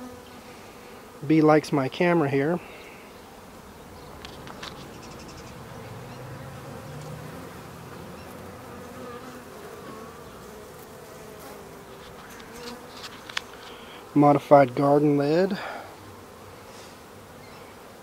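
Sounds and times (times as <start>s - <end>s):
bees buzzing: 0.0s - 18.0s.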